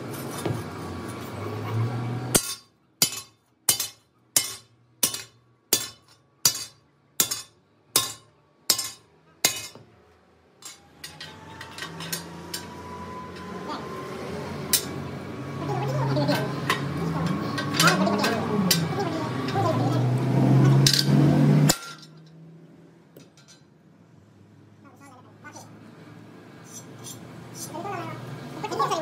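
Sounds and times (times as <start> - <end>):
hammer striking metal: 2.3 - 9.8, 20.8 - 22.4.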